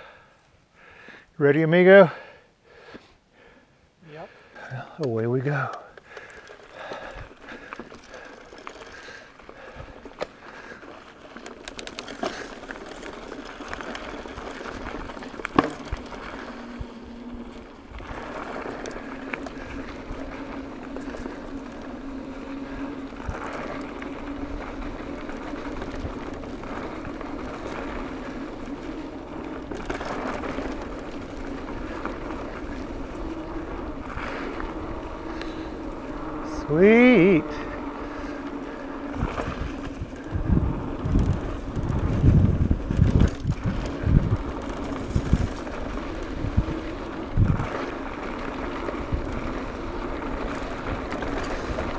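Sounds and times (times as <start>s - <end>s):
bike tyre noise on dirt: 0.0s - 51.9s
bike rattling over bumps: 5.3s - 51.9s
wind rushing over microphone: 15.9s - 51.9s.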